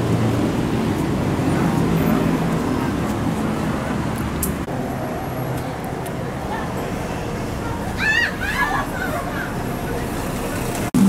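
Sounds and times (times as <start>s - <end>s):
traffic noise: 0.0s - 11.0s
faint voices: 5.2s - 11.0s.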